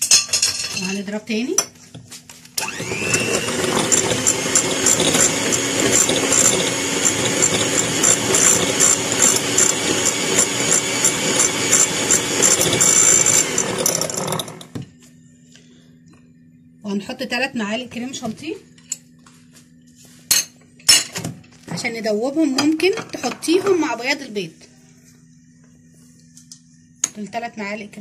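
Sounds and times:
hand mixer motor whine: 2.6 - 14.8.

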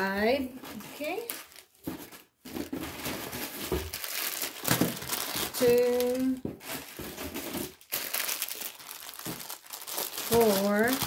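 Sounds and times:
plastic packets crinkling: 0.6 - 11.0.

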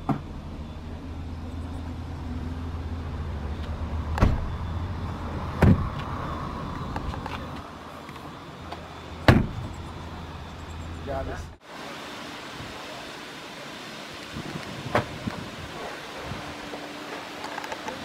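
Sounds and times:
car door shutting: 4.1 - 4.6, 5.5 - 6.1, 9.2 - 9.7, 14.8 - 15.4.

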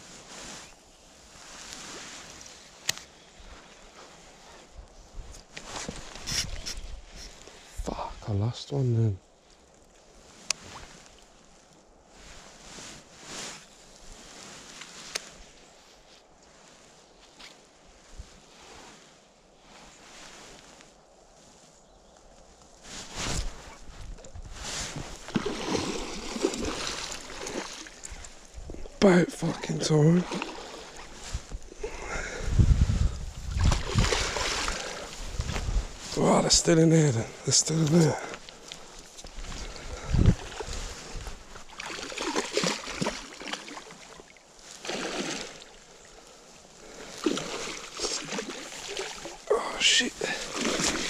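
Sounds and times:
water churning: 25.0 - 32.0, 33.5 - 35.2, 41.7 - 45.8, 46.8 - 51.0
fish splashing: 25.1 - 28.2, 33.6 - 35.1, 41.7 - 44.2, 44.8 - 45.8, 47.2 - 49.4, 50.2 - 51.0.

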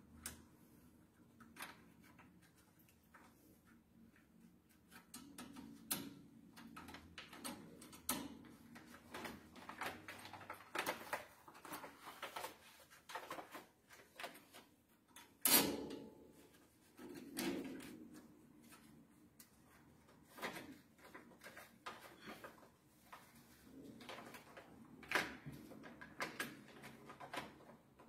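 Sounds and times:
paper crackling and rustling: 7.0 - 15.0, 16.8 - 28.0.

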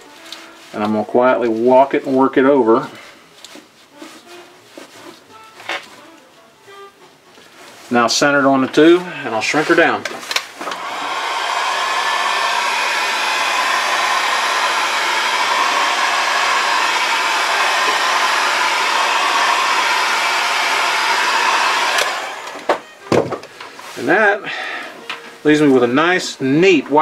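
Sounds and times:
heat gun blowing: 8.7 - 25.6.

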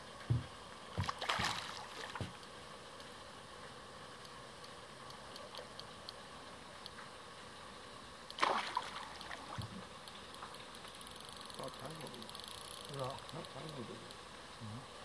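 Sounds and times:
splash in water: 1.0 - 2.2, 8.4 - 9.5
faint high ticks: 4.2 - 6.2, 6.8 - 7.1, 9.1 - 14.3.

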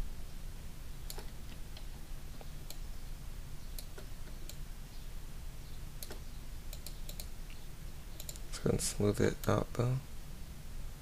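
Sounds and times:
steady low hum: 0.0 - 11.0
computer mouse clicks: 1.1 - 2.8, 3.8 - 4.6, 6.0 - 7.3, 8.2 - 8.5.

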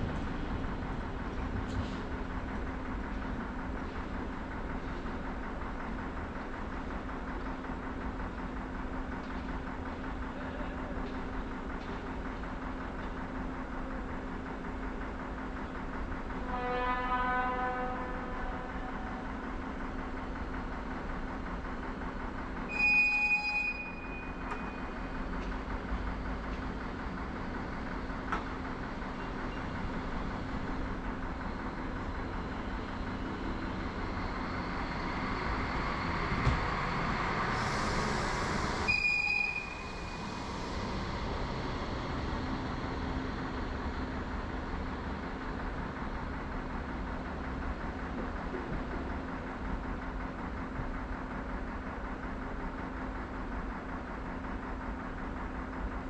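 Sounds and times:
high-pitched signal tone: 22.7 - 24.7, 38.9 - 40.3
electric train running: 23.6 - 48.5.

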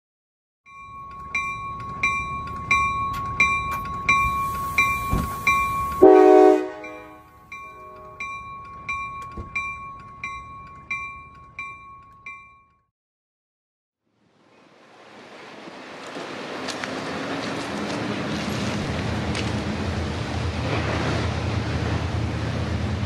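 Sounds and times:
low train rumble: 0.7 - 12.6, 14.1 - 23.0
bell ringing steadily: 0.7 - 12.9
train horn chord: 5.9 - 8.2.

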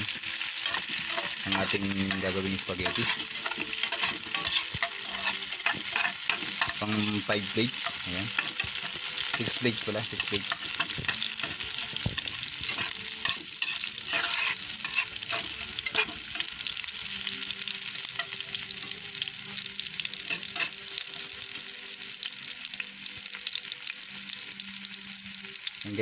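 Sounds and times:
vegetables sizzling in oil: 0.0 - 26.0
utensil scraping pan: 0.4 - 16.5.

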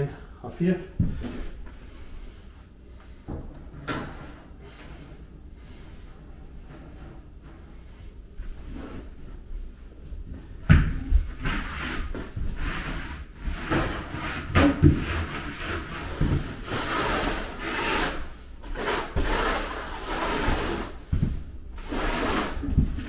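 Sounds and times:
trowel scraping mortar: 16.7 - 21.0, 21.8 - 22.8.

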